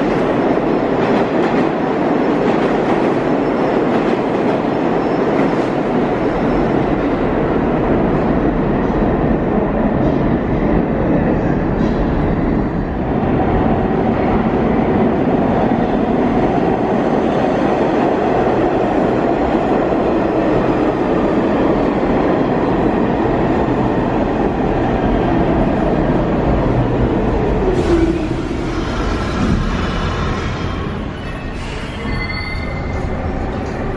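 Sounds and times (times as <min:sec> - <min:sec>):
train wheels rumbling on rail: 0:00.0 - 0:33.9
faint falling brake squeal: 0:31.2 - 0:33.1.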